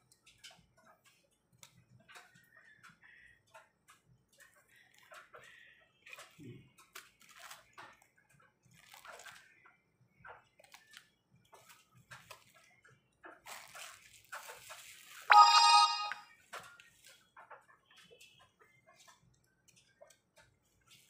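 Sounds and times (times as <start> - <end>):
high multi-tone sound: 15.3 - 16.2.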